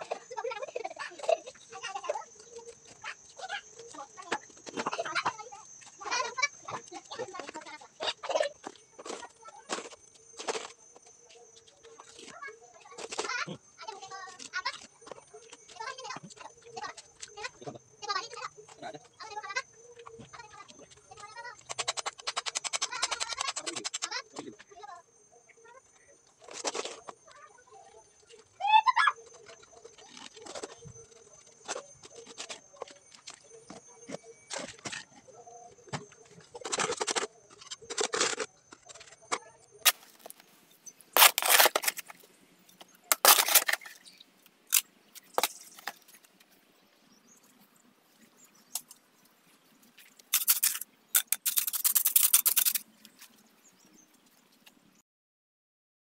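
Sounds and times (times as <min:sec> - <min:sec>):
trowel scraping mortar: 0:39.9 - 0:40.4, 0:41.1 - 0:42.2, 0:43.1 - 0:44.1, 0:44.7 - 0:46.2, 0:50.2 - 0:53.2.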